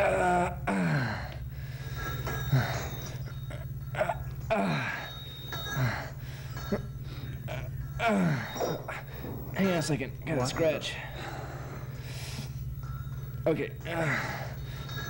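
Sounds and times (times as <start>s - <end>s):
man grunting and gasping: 0.0s - 1.5s
steady low hum: 0.0s - 15.0s.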